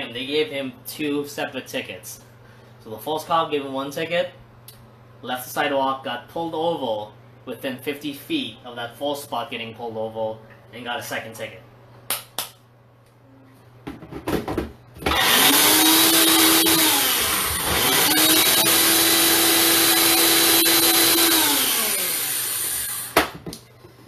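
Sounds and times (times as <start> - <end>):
blender motor running: 15.0 - 23.2.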